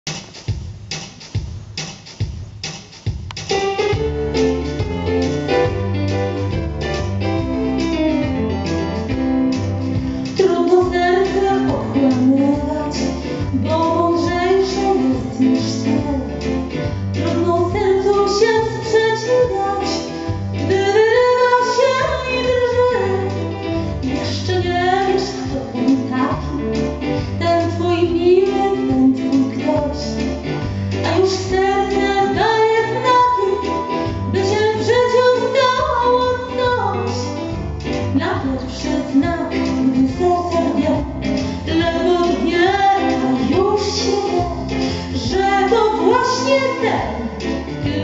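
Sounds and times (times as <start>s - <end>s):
ticking beat: 0.1s - 10.9s
bass and chords: 3.1s - 48.0s
woman singing into microphone: 10.4s - 16.6s, 17.2s - 30.3s, 31.0s - 37.3s, 38.2s - 48.0s.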